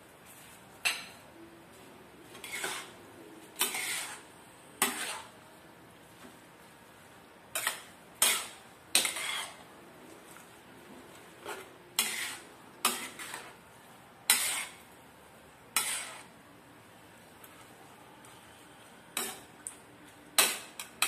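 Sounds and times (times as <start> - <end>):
spatula scraping a wok: 2.2 - 5.4, 7.5 - 15.0, 15.7 - 16.4, 19.1 - 19.6.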